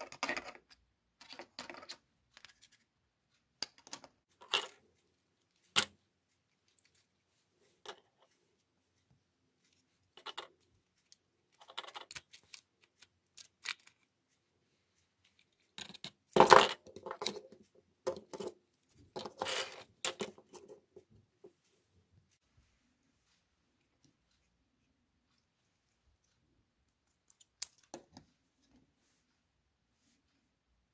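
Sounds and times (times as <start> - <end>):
plastic clicks and scrapes: 10.0 - 14.1.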